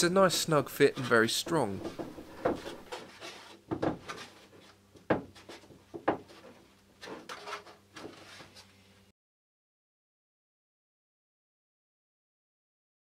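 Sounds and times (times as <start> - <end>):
light wooden knocks and scrapes: 0.3 - 8.8.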